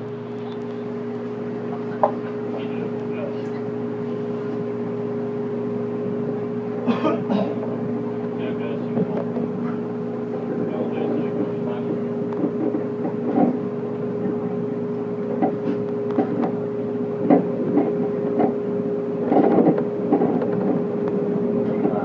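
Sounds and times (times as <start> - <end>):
electric train humming: 0.0 - 22.0
wheels clacking on track: 8.2 - 22.0.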